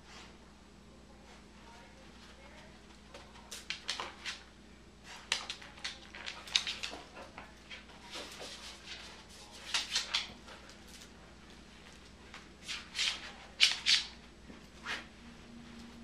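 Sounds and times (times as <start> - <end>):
dog claws clicking on wood floor: 5.3 - 7.5.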